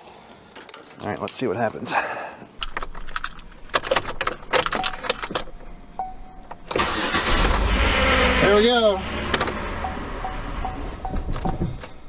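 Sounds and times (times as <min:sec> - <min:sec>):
car engine cranking and starting: 0:02.6 - 0:12.0
short steady tone: 0:09.8 - 0:11.8.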